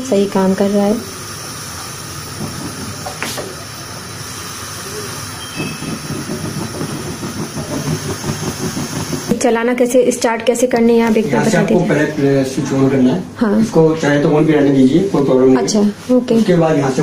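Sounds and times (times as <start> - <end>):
gas burner hissing: 0.0 - 17.0
rapid flame flutter: 1.0 - 9.6.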